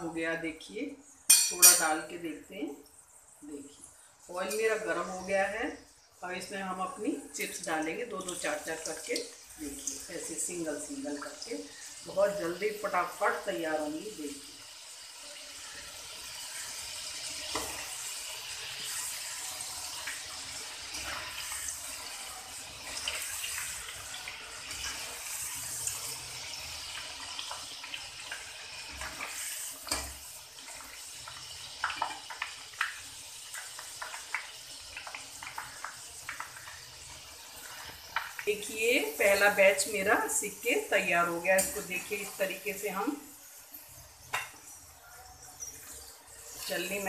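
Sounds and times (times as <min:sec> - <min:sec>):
potato slices sizzling in hot oil: 0:00.0 - 0:47.0
oil crackling: 0:16.1 - 0:39.4.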